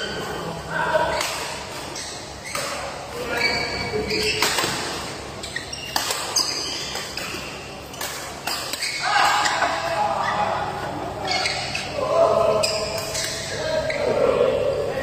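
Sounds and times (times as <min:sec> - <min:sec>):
shoes squeaking on court: 0:01.1 - 0:10.5, 0:11.1 - 0:14.2
rackets hitting shuttlecock: 0:04.1 - 0:05.2, 0:05.8 - 0:09.8.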